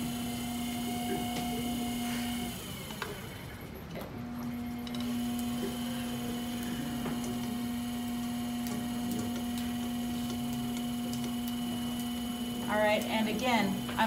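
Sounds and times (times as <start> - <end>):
potter's wheel motor hum: 0.0 - 14.0.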